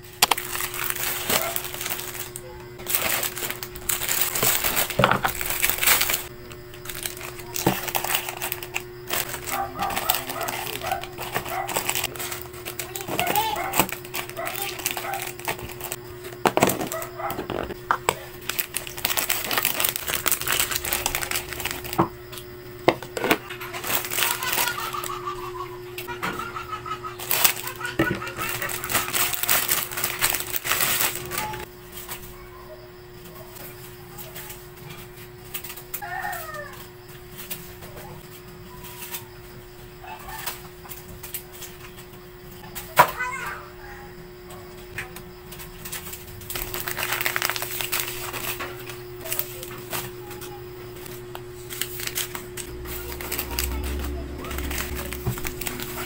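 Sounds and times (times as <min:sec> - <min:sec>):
plastic snack wrappers crinkling: 0:00.0 - 0:22.1, 0:22.9 - 0:26.2, 0:27.0 - 0:32.2, 0:45.5 - 0:56.0
steady low hum: 0:00.0 - 0:36.0, 0:43.6 - 0:56.0.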